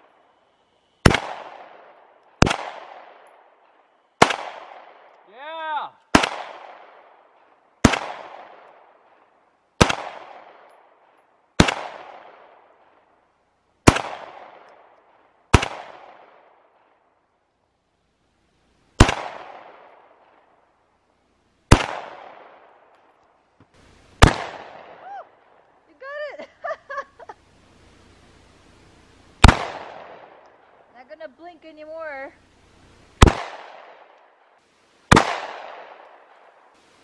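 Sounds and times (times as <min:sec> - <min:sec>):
pistol shots with echo: 0:01.0 - 0:03.5, 0:04.2 - 0:05.3, 0:06.1 - 0:10.8, 0:11.6 - 0:12.8, 0:13.8 - 0:14.9, 0:15.5 - 0:16.6, 0:19.0 - 0:20.5, 0:21.7 - 0:22.9, 0:24.2 - 0:25.0, 0:29.4 - 0:30.6, 0:33.2 - 0:34.3, 0:35.1 - 0:36.6.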